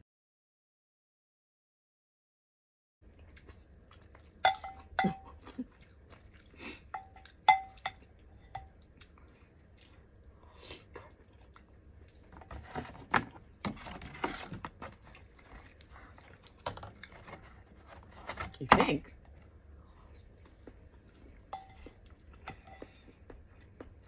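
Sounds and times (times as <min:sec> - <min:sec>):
wet chewing and slurping: 0:03.1 - 0:12.3, 0:15.0 - 0:17.7, 0:20.0 - 0:24.0
utensil clinking on dishware: 0:04.4 - 0:05.4, 0:07.0 - 0:08.8, 0:21.6 - 0:23.0.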